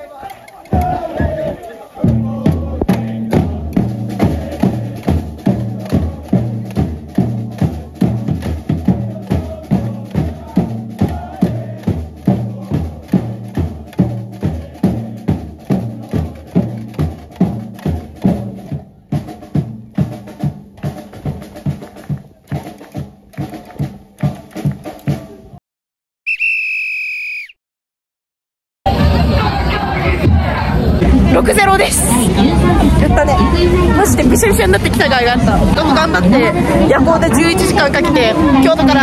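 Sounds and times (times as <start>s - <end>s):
samba bass drums: 0.0s - 25.6s, 28.9s - 39.0s
snare drum: 0.6s - 25.4s.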